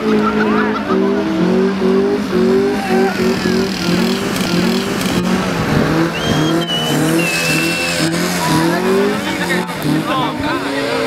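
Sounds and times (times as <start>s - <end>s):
motorcycle engine revving: 0.0s - 11.0s
high tyre squeal: 2.3s - 11.0s.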